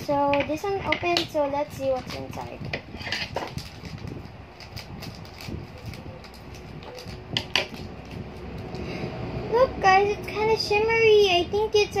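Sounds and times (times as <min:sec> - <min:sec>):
plastic packaging rustling: 0:01.8 - 0:08.8.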